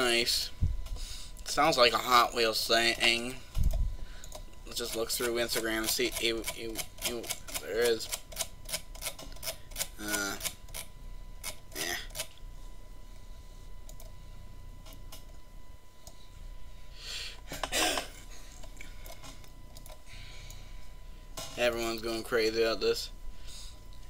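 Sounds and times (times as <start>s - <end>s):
faint high whine: 0.0s - 24.0s
computer mouse clicks: 13.9s - 14.2s, 18.6s - 20.6s.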